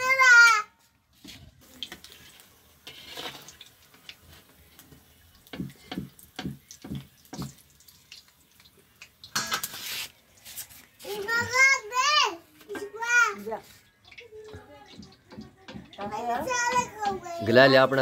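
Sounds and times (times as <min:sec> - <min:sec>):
fritters sizzling in hot oil: 0:00.0 - 0:18.0
metal ladle knocking on pan: 0:05.5 - 0:07.6, 0:14.5 - 0:17.4.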